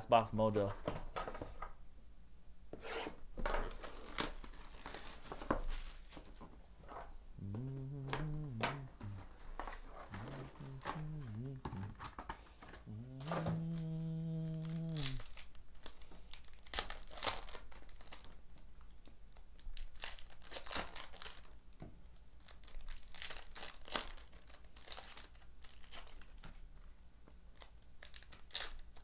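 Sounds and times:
foil wrappers crinkling and tearing: 3.6 - 6.4, 14.6 - 21.6, 22.4 - 26.6, 27.5 - 29.0
person humming low note: 7.4 - 12.1, 12.8 - 15.2.

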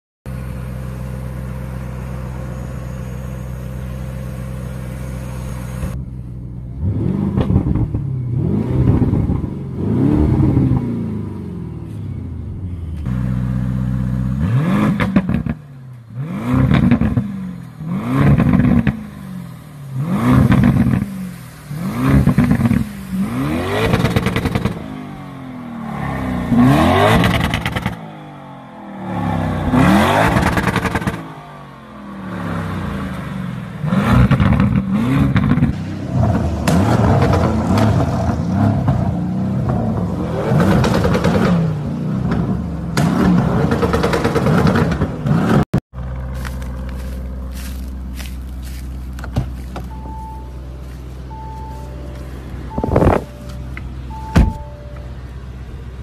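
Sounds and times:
car engine idling: 0.3 - 7.0, 16.8 - 26.5, 45.9 - 56.0
car engine revving: 0.7 - 56.0.

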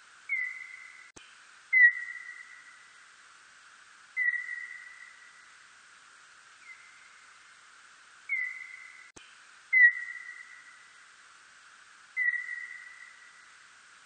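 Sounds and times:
steady hiss: 0.0 - 14.0
bat whistle-like chirps: 0.3 - 1.1, 4.2 - 5.2, 8.3 - 9.1, 12.2 - 13.3.

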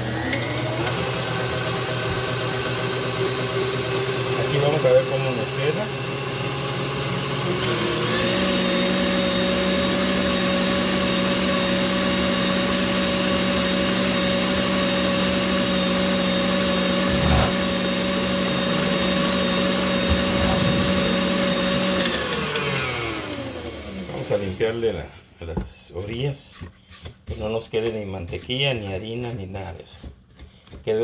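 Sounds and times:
stand mixer motor whining: 0.0 - 24.8.

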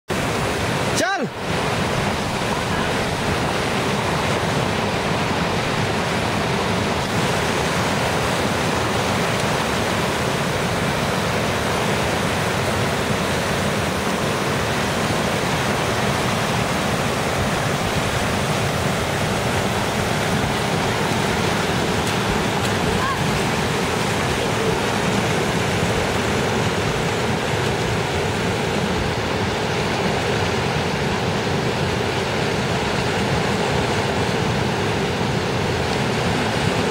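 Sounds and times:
river rushing over boulders: 0.1 - 36.9.

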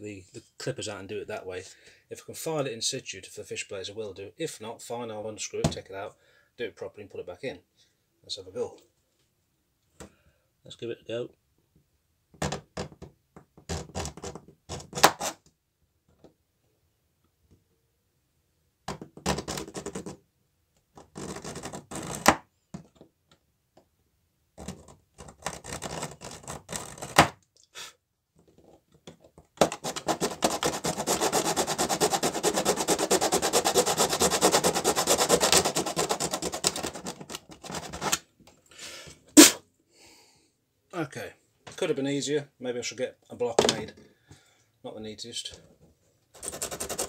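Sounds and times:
hand saw cutting metal: 29.7 - 37.2.

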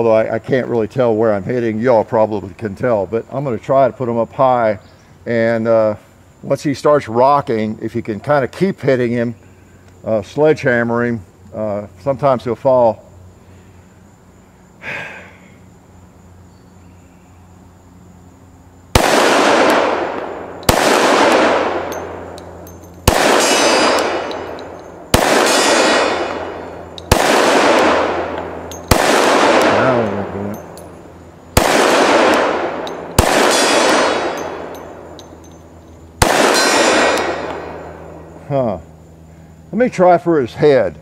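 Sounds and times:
pistol shots with echo: 19.0 - 38.2.

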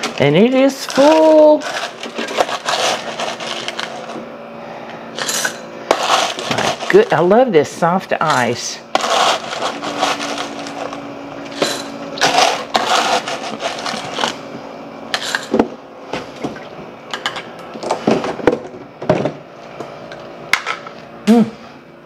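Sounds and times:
ice crunching and clattering: 0.0 - 4.2, 5.2 - 7.2, 9.0 - 14.4.

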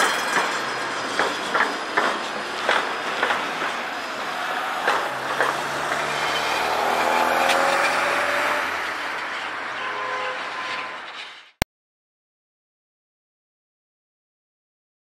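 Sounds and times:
tram wheels clacking over track: 0.0 - 9.5
tram pulling away: 0.0 - 11.2
car driving past: 3.6 - 11.2.

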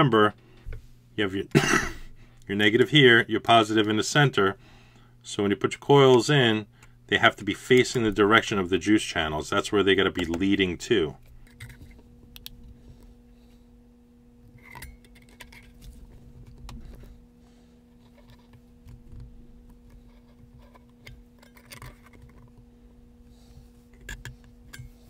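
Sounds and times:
steady low hum: 0.0 - 25.0
small metallic clicks and scrapes: 14.6 - 16.0, 19.9 - 22.6.

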